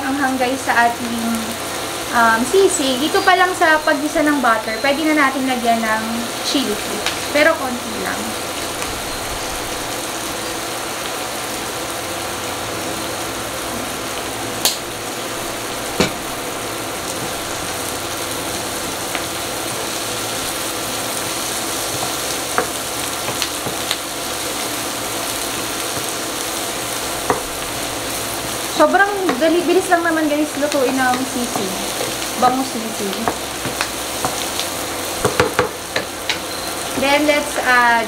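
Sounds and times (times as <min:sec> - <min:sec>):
onions sizzling in a pan: 0:00.0 - 0:38.0
wooden spoon scraping a pan: 0:30.7 - 0:34.5.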